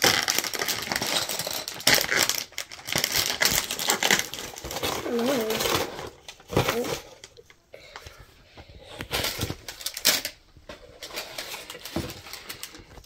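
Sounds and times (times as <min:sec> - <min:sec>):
paper and plastic bags rustling: 0:00.0 - 0:13.0.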